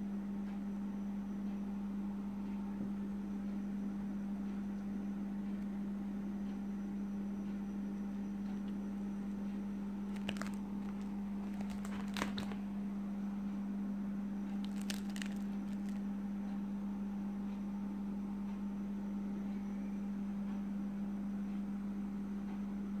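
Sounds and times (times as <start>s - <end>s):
low steady hum: 0.0s - 23.0s
plastic pages crinkling: 10.1s - 12.6s, 14.6s - 16.0s.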